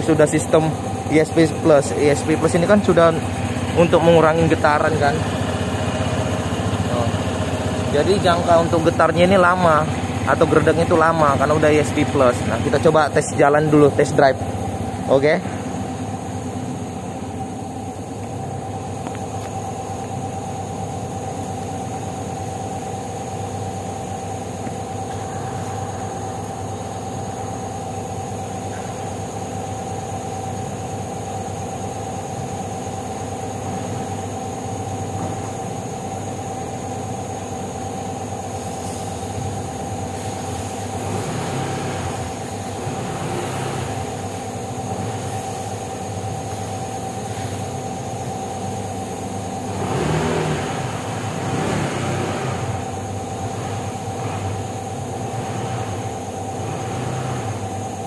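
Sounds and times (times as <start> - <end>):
scooter engine running: 0.0 - 23.2, 34.9 - 46.4, 47.2 - 58.0.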